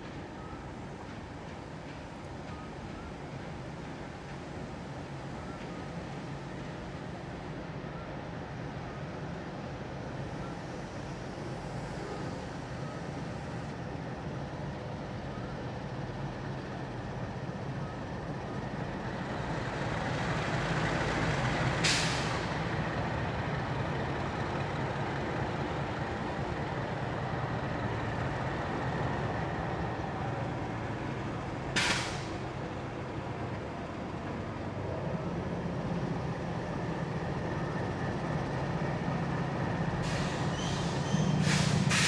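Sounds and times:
diesel locomotive engines: 0.0 - 42.0
air brake hiss: 21.8 - 22.5, 31.8 - 32.4, 40.0 - 42.0.

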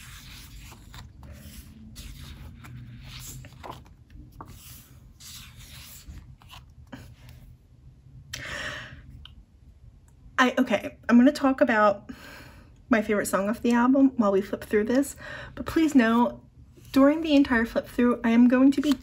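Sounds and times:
paper and cardboard rustling: 0.0 - 7.4.

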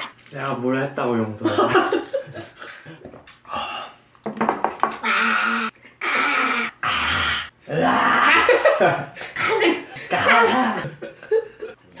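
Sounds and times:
man and woman laughing: 8.0 - 11.8.

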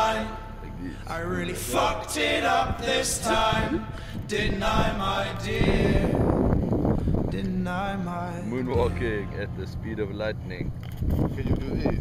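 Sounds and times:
music: 0.0 - 3.7, 8.4 - 10.2
men singing: 0.0 - 6.5.

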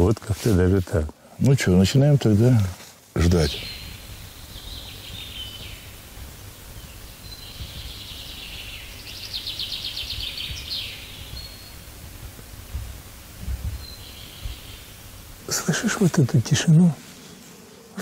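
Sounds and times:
songbirds singing and trilling: 3.2 - 16.9.

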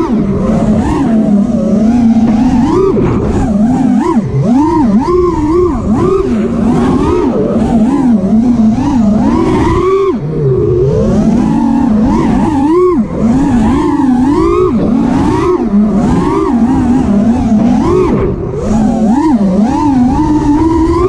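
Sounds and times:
quadcopter motors whining: 0.0 - 21.0.

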